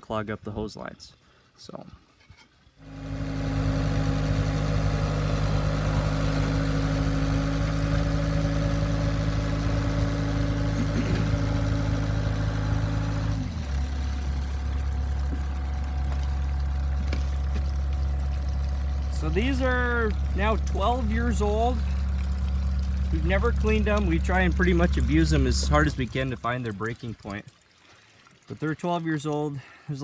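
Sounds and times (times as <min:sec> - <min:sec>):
motor humming: 0:02.8 - 0:26.4.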